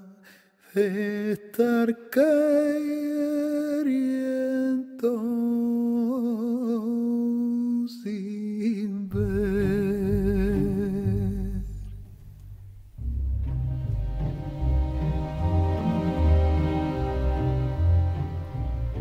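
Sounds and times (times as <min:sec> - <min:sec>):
person singing wordless long notes: 0:00.0 - 0:12.0
deep bass accompaniment: 0:09.2 - 0:19.0
instrumental music: 0:09.2 - 0:19.0.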